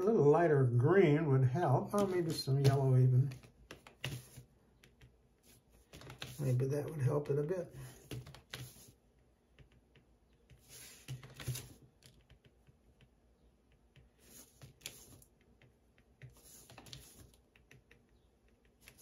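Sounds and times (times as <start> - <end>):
stylus tapping and scratching on paper: 1.9 - 7.1, 7.8 - 19.0
stylus scraping strokes: 14.0 - 15.4, 16.2 - 17.5.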